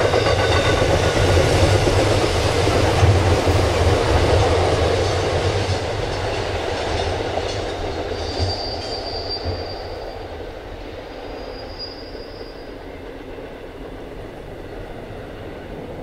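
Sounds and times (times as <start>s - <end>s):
high wheel squeal: 0.0s - 1.1s, 8.0s - 10.4s, 11.1s - 13.0s.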